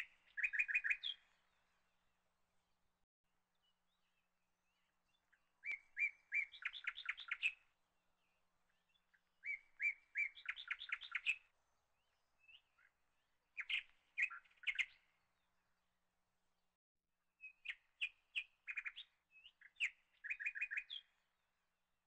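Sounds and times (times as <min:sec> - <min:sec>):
small bird chirping: 0:00.0 - 0:01.6, 0:03.5 - 0:07.7, 0:08.3 - 0:13.0, 0:13.6 - 0:15.1, 0:17.4 - 0:21.3.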